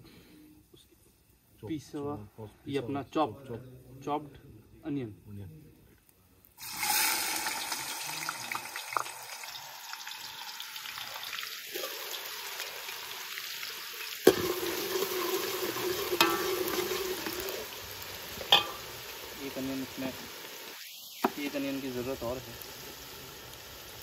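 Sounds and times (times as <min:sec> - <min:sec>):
onions sizzling in hot oil: 0:06.6 - 0:24.0.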